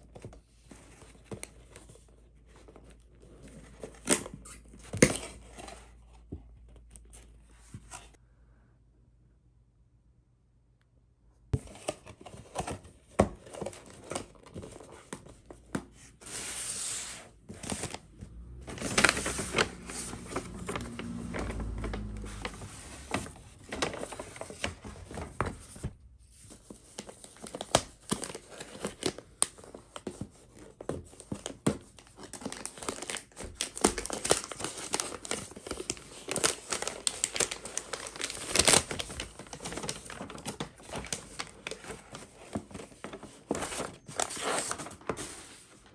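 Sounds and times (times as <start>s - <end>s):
paper crinkling and rustling: 11.5s - 45.9s.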